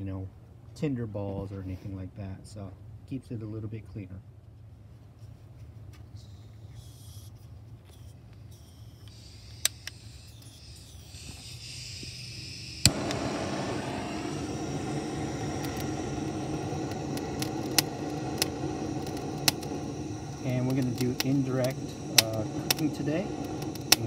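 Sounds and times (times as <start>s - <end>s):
torch flame hissing: 7.9s - 24.0s
torch igniter clicks: 8.6s - 24.0s.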